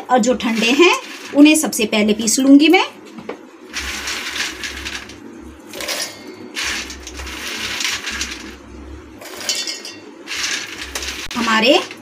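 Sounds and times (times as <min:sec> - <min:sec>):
puffed seeds rattling into steel jar: 0:00.4 - 0:01.6, 0:03.7 - 0:05.2, 0:06.6 - 0:08.6, 0:10.3 - 0:12.0.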